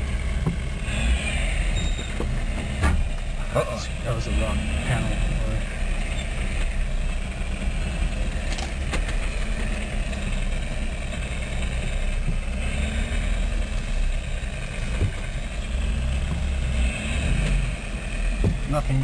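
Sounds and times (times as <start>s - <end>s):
vehicle body knocking and rattling: 0.0s - 0.9s, 1.7s - 3.6s, 5.8s - 12.6s, 13.8s - 16.7s, 17.4s - 19.0s
vehicle engine running at low speed: 0.0s - 19.0s.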